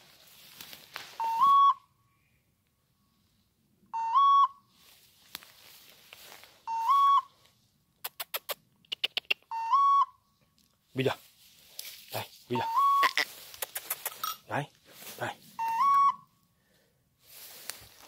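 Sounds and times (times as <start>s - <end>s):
grass and brush rustling: 0.0s - 1.8s, 4.7s - 7.8s, 10.7s - 18.0s.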